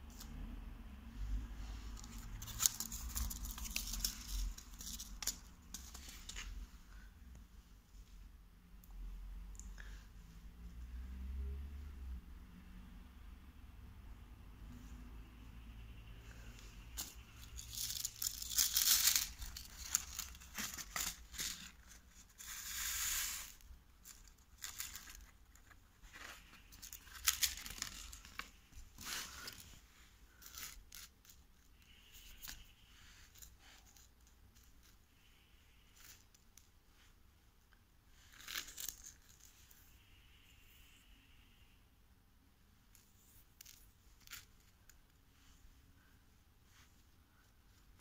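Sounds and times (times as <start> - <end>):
paper packet tearing and crinkling: 2.0 - 6.4, 17.0 - 29.6.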